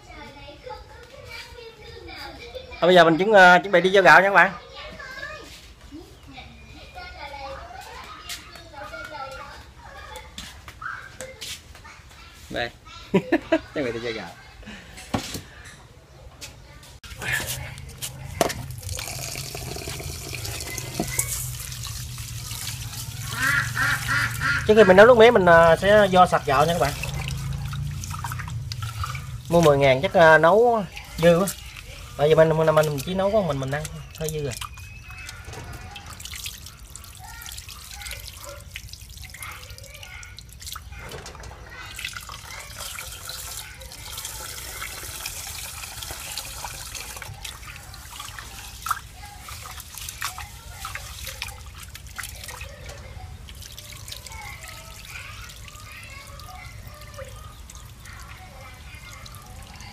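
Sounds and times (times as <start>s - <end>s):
tap water running into bowl: 17.8s - 59.9s.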